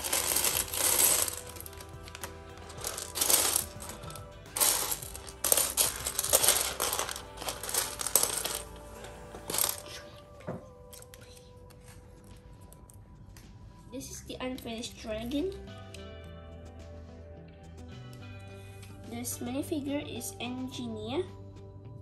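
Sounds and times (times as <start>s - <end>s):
bricks rattling as hands sift: 0.0s - 8.8s
plastic bricks clattering: 0.0s - 8.8s, 9.4s - 9.9s.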